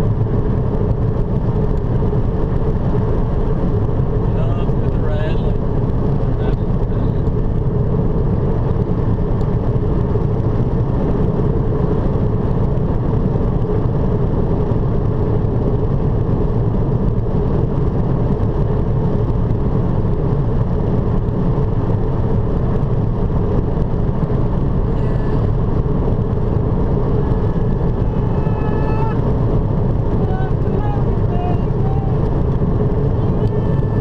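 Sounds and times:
car road noise rumble: 0.0s - 34.0s.

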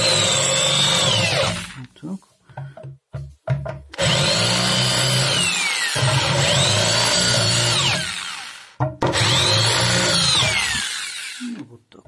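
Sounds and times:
electric drill motor whine: 0.0s - 1.8s, 4.0s - 11.5s.

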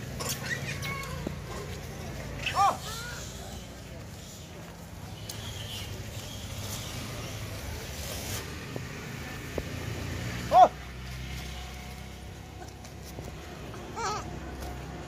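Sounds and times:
monkey squealing: 0.2s - 1.2s, 2.4s - 3.4s.

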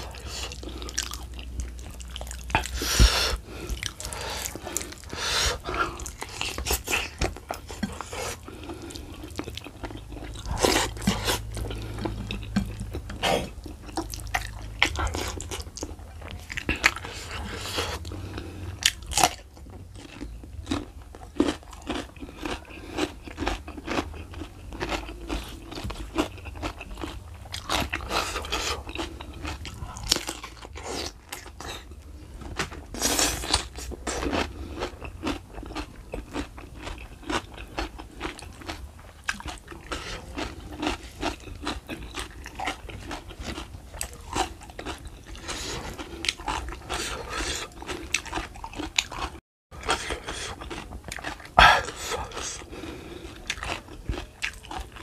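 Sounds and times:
person chewing crunchy food: 0.0s - 55.0s.

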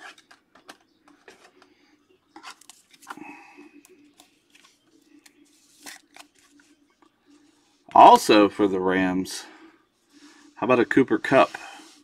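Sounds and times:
cards and plastic cases clicking: 3.8s - 6.6s.

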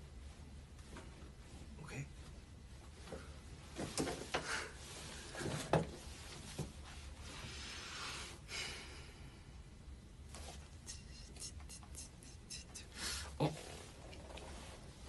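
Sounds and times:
soft rubbing on microphone: 4.8s - 8.2s, 10.3s - 15.0s.

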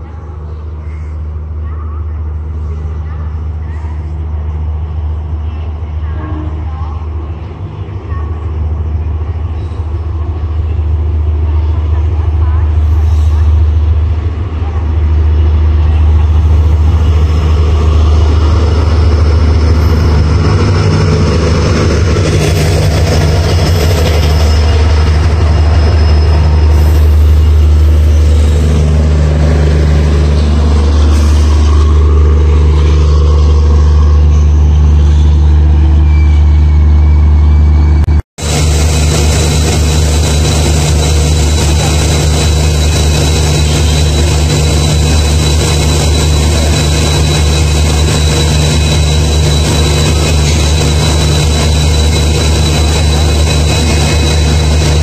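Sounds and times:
passenger train rolling past: 0.0s - 55.0s
diesel engine drone: 13.4s - 55.0s.

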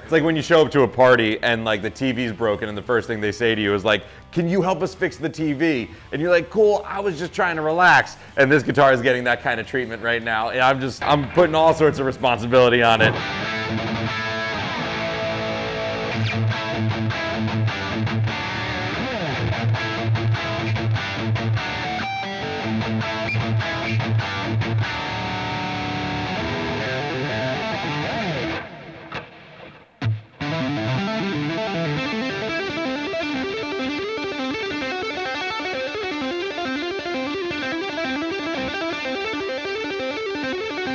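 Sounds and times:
distorted electric guitar chugging: 11.0s - 40.9s
electric guitar tapped runs: 16.1s - 33.7s.

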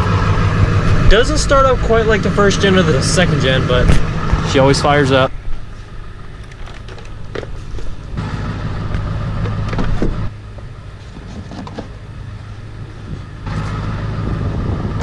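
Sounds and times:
diesel engine idling: 0.0s - 15.0s
gear clunking in truck bed: 8.8s - 12.0s.

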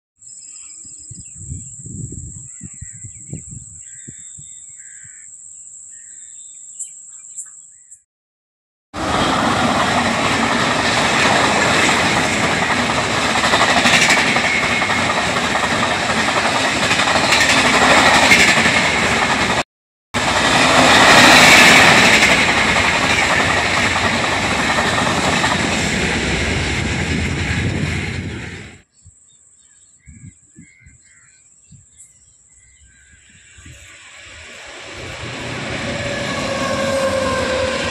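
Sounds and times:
train rushing past: 9.0s - 19.6s, 20.2s - 28.8s, 33.3s - 37.9s.

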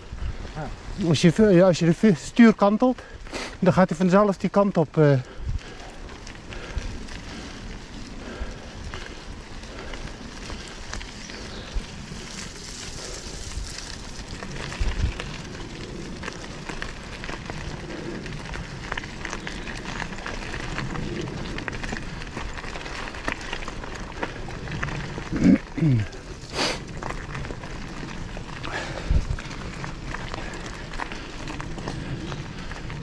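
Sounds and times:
bike rattling: 0.0s - 33.0s
bike tyres crunching on trail: 0.0s - 33.0s.

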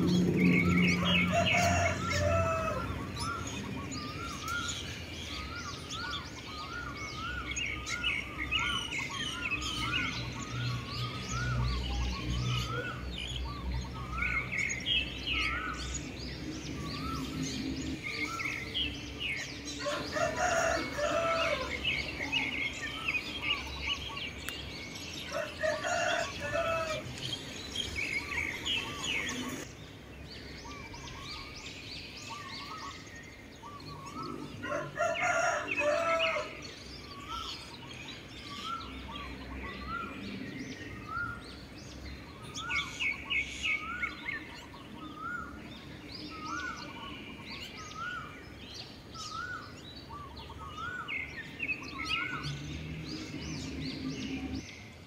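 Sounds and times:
small birds chirping: 0.0s - 55.0s
rooster crowing: 0.8s - 3.3s, 19.8s - 22.4s, 25.3s - 27.1s, 34.6s - 36.6s.

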